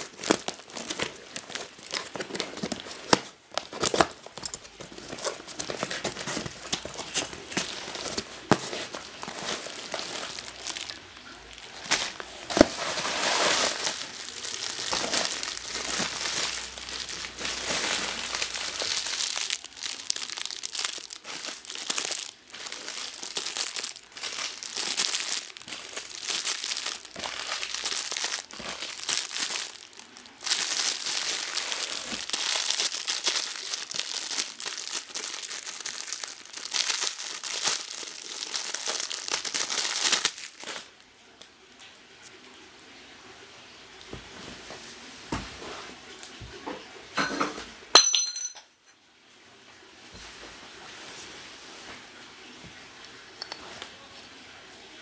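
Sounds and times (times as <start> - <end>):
paper wrapping rustling: 0.0 - 41.0
plastic bags crinkling: 0.0 - 41.9.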